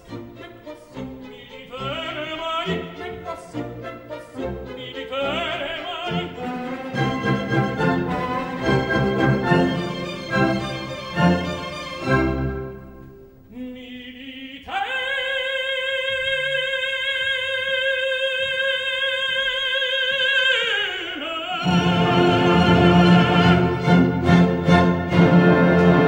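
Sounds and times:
orchestra playing loudly: 0.0 - 13.4, 21.6 - 26.0.

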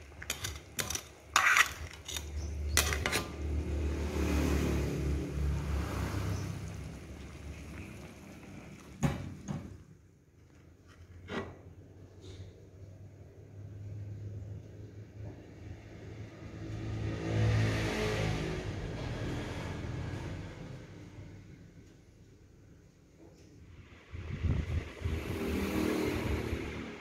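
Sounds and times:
metal spatula scraping a wok: 0.0 - 3.4
vehicle passing: 3.1 - 9.0, 15.5 - 21.6, 23.8 - 27.0.

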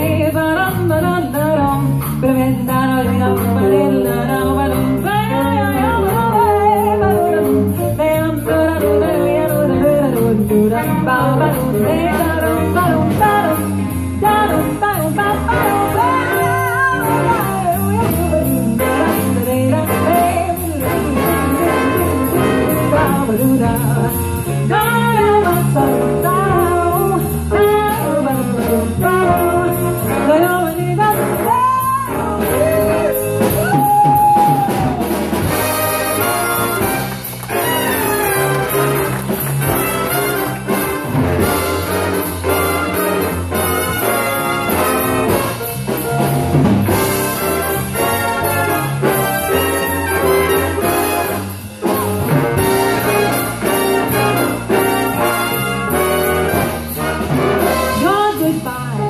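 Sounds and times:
woman singing: 0.0 - 33.9, 57.6 - 59.0
big band jazz with brass: 0.0 - 59.0.

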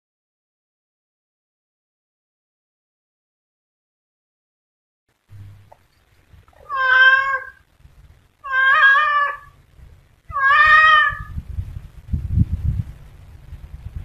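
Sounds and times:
cat meowing: 6.6 - 7.6, 8.4 - 9.6, 10.3 - 11.4.

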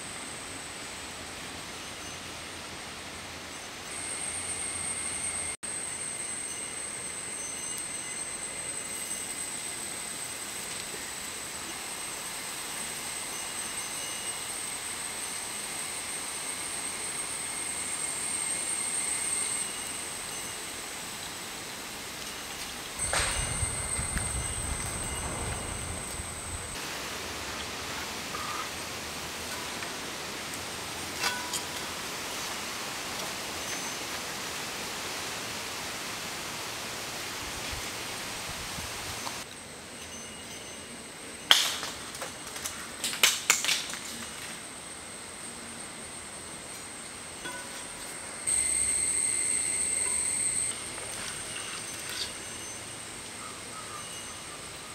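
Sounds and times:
thin high tone: 23.0 - 26.8, 47.3 - 54.8.

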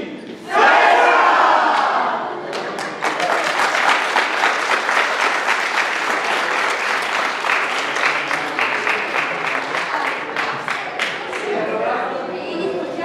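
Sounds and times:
group applauding: 1.6 - 11.7.

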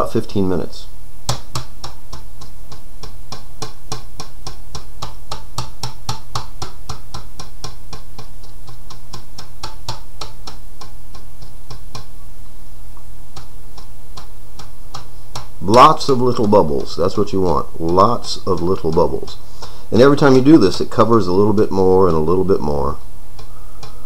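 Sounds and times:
dauber tapping on metal grill: 1.3 - 12.1.

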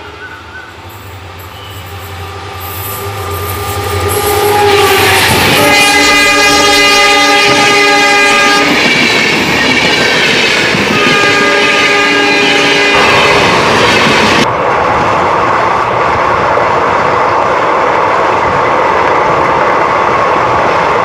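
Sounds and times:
train horn blast: 0.0 - 8.8, 10.9 - 13.8
train rushing and clattering: 0.0 - 21.0.

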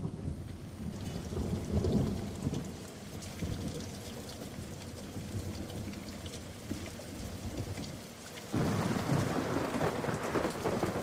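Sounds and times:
thunder rumbling: 0.0 - 5.9, 8.5 - 11.0
steady rain: 0.0 - 11.0.

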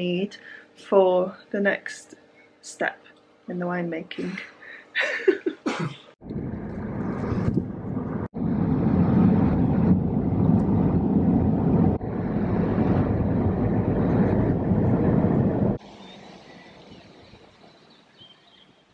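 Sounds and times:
car engine and tyre rumble: 6.2 - 17.1.

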